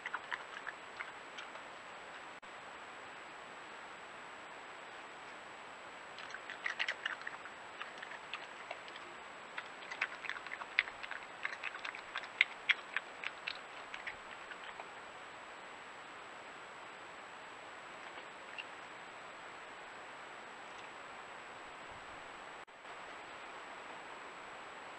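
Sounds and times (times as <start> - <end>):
faint high whine: 0.0 - 24.9
badger crunching peanuts: 6.2 - 14.9.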